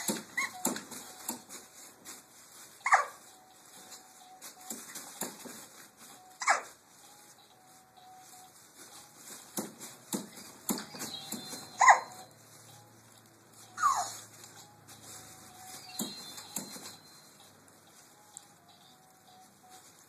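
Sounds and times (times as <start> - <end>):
baby squealing: 11.8 - 12.2, 13.8 - 14.2.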